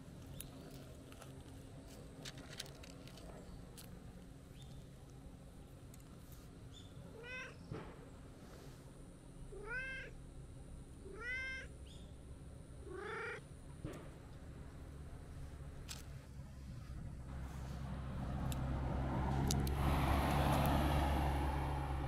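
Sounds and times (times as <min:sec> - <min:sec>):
cat meowing: 0:07.1 - 0:07.6, 0:09.6 - 0:10.2, 0:11.1 - 0:11.7, 0:12.9 - 0:13.4.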